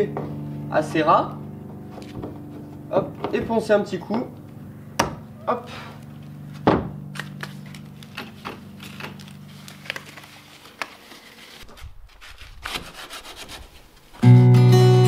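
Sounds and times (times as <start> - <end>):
latex glove rustling: 5.7 - 14.2
sandpaper rubbing on filler: 10.3 - 14.2.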